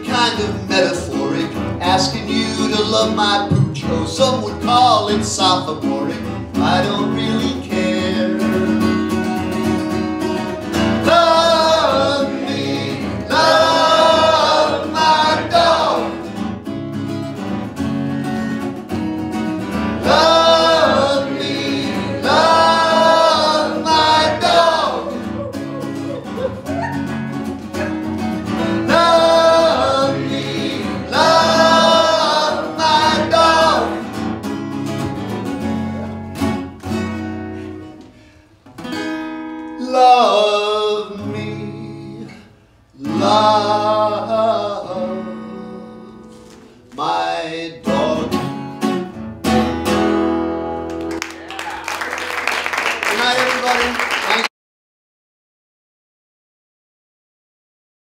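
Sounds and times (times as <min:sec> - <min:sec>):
man singing: 0:00.0 - 0:08.8, 0:20.0 - 0:25.5, 0:28.7 - 0:34.1, 0:39.8 - 0:46.4, 0:47.0 - 0:48.6
acoustic guitars strummed: 0:00.0 - 0:51.4.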